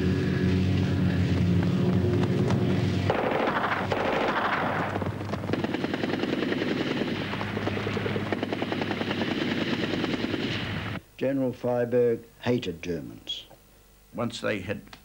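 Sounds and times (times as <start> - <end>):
low drone: 0.0 - 11.0
automatic gunfire: 3.1 - 10.5.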